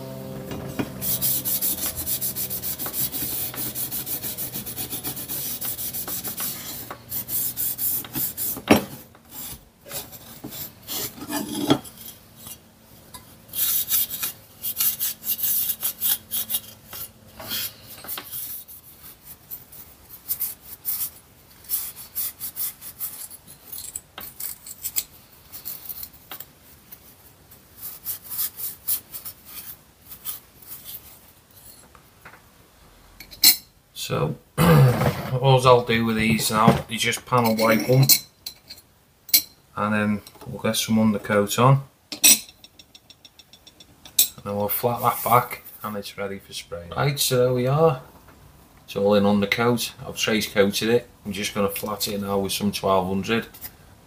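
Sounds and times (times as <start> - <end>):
abrasive pad scrubbing metal: 0.0 - 8.7.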